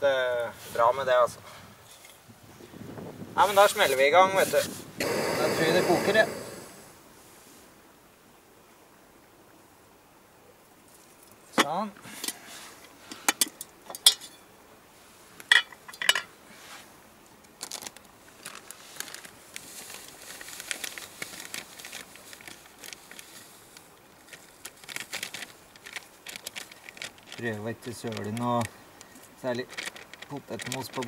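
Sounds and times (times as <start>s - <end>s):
metal cookware clinking: 13.9s - 14.4s
plastic packet rustling: 17.6s - 31.0s.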